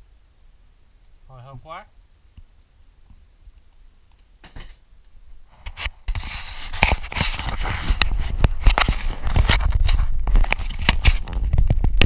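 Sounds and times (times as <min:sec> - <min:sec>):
handling noise rubbing and scraping: 0:05.4 - 0:11.7.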